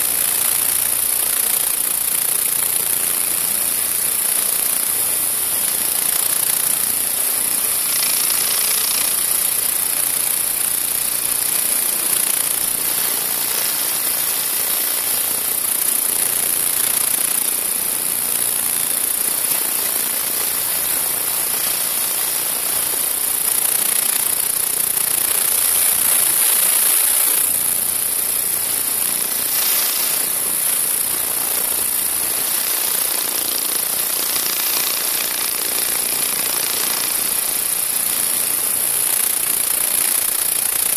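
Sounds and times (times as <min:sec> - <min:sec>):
vibrating sieve machine rattling: 0:00.0 - 0:40.9
high-pitched hiss: 0:19.2 - 0:40.9.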